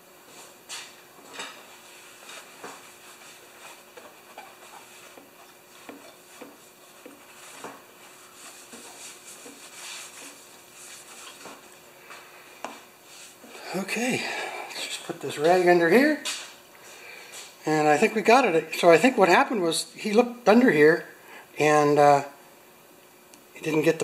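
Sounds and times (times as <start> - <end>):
cloth rag rubbing metal: 1.8 - 11.7.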